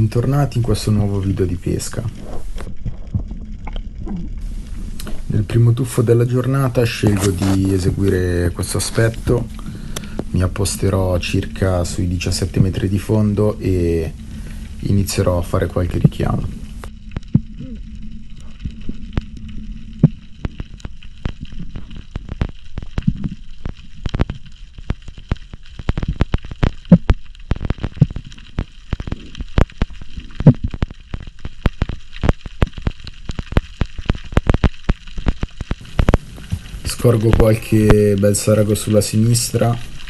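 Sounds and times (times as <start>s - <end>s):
low underwater rumble: 0.0s - 39.0s
sharp underwater clicks and pops: 1.9s - 5.3s, 6.6s - 10.4s, 15.8s - 17.6s, 18.3s - 40.0s.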